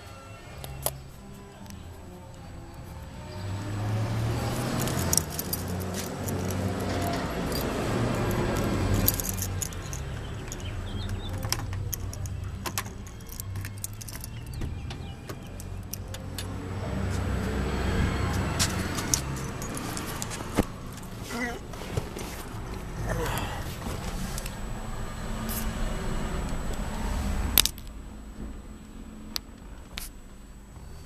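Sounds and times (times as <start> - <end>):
car keys jangling: 4.3 - 16.6, 18.3 - 21.5.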